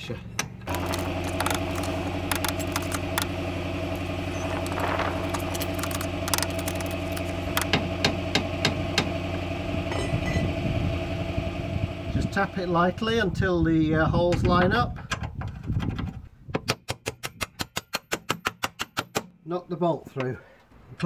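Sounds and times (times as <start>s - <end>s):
low machine hum: 0.1s - 13.9s
metal clinks and knocks: 4.3s - 7.8s.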